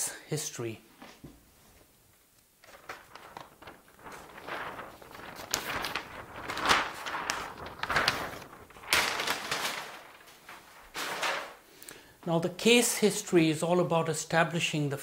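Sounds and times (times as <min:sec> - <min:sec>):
paper sheet rustling and crackling: 0:01.1 - 0:11.8.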